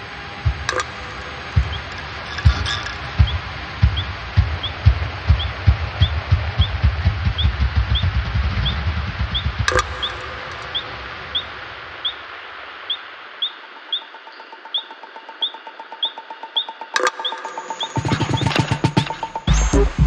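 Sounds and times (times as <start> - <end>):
steady mid-pitched tone: 0.0 - 15.4
bass pulse: 0.4 - 11.6
sharp click: 9.7 - 10.8.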